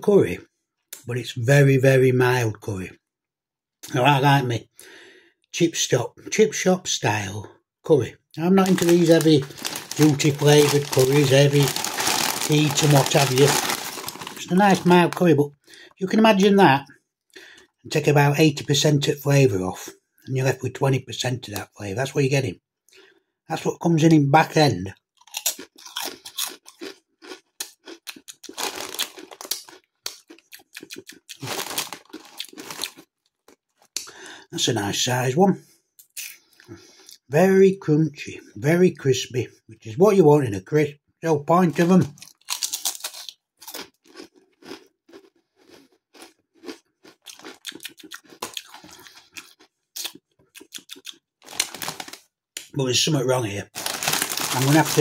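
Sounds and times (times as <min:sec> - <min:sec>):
foil crisp packet crinkling: 0:08.4 - 0:15.5, 0:28.3 - 0:30.1, 0:31.3 - 0:33.5, 0:41.7 - 0:43.9, 0:50.8 - 0:52.3, 0:53.4 - 0:55.0.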